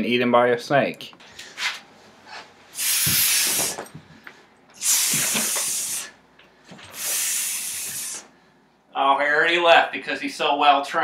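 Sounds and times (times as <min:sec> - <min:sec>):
man hissing like a snake: 0:02.8 - 0:03.9, 0:04.8 - 0:06.2, 0:06.9 - 0:08.4.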